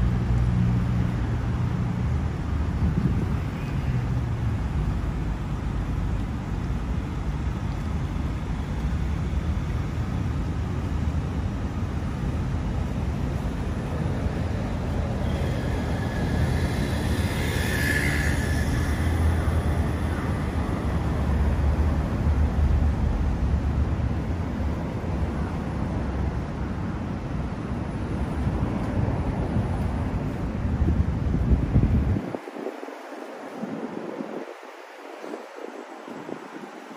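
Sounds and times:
traffic rumble: 0:00.0 - 0:36.9
vehicle passing: 0:13.4 - 0:23.7.

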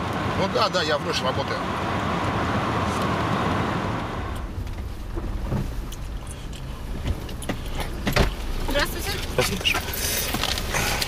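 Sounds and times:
low engine hum: 0:00.0 - 0:11.0
road and wind hiss: 0:00.0 - 0:11.0.

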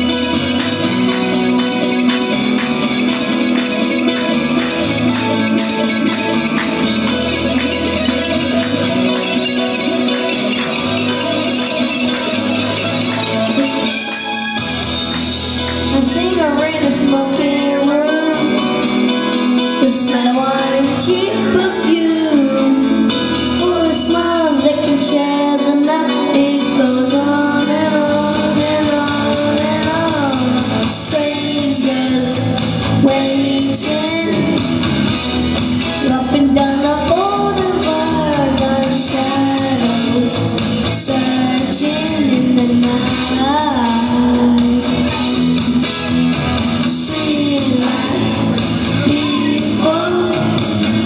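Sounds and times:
pop-rock backing track: 0:00.0 - 0:51.0
boy singing into microphone: 0:15.8 - 0:35.2, 0:35.9 - 0:45.6, 0:46.7 - 0:51.0.

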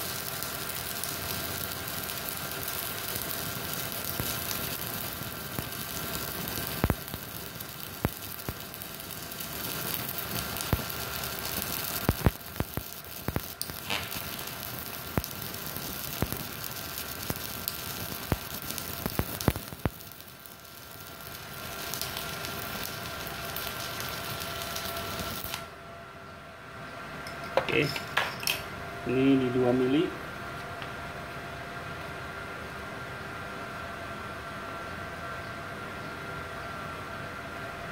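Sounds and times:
welding arc crackling sizzle: 0:00.0 - 0:25.8.

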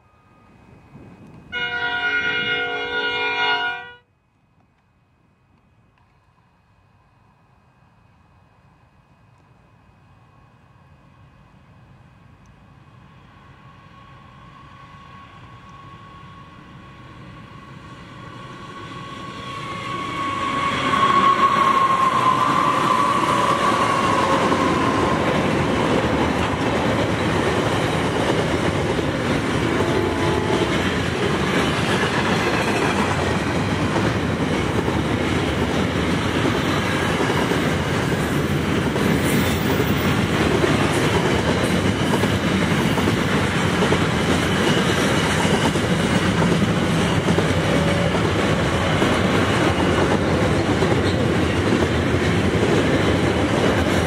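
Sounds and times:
train wheels clattering on rails: 0:18.3 - 0:54.0.

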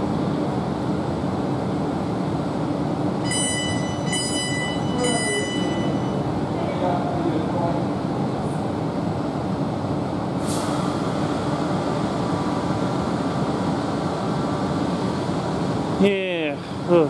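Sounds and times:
train equipment humming: 0:00.0 - 0:17.0
air hiss: 0:10.4 - 0:11.3.

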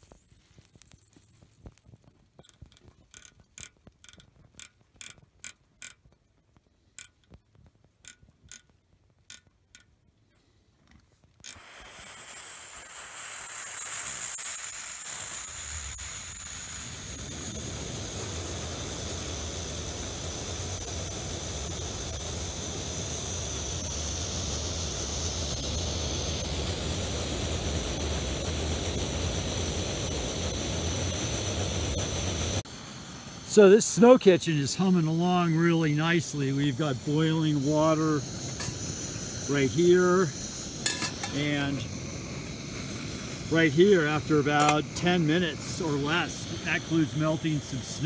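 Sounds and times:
camp stove burner roaring: 0:00.0 - 0:10.1, 0:10.8 - 0:48.0
sharp mechanical clicks: 0:02.4 - 0:06.3, 0:06.9 - 0:10.0.

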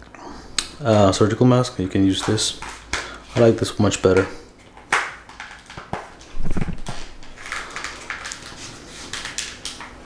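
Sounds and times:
mask handling clicks and rustles: 0:04.6 - 0:10.0.

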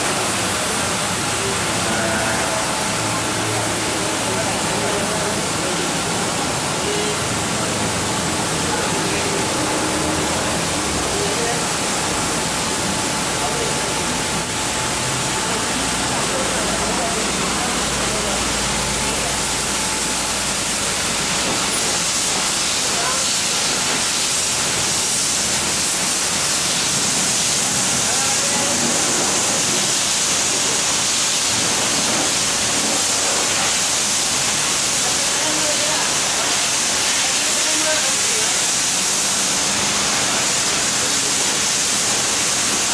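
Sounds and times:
car wash equipment rushing: 0:00.0 - 0:42.9.

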